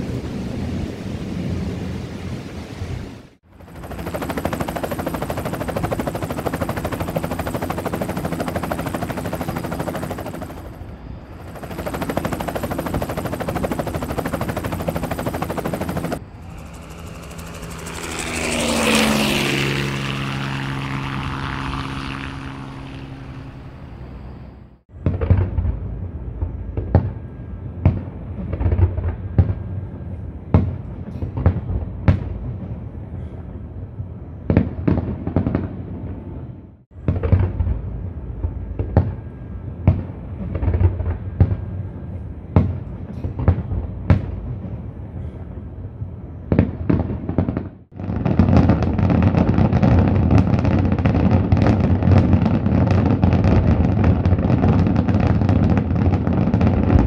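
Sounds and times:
passing engine drone: 0:14.8 - 0:24.8
fireworks bangs: 0:46.5 - 0:57.0.

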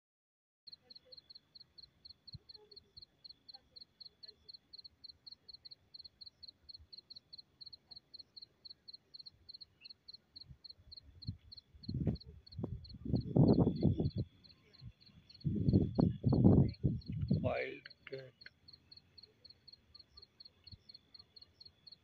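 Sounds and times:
cricket chirping: 0:00.7 - 0:22.0
faint insect trill: 0:00.7 - 0:22.0.

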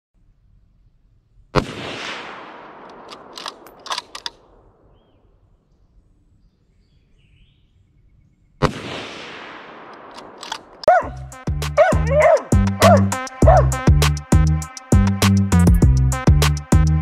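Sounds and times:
rifle shots with rolling echo: 0:01.5 - 0:05.6, 0:08.6 - 0:11.2
sharp clicks: 0:02.7 - 0:04.7, 0:09.8 - 0:11.1.

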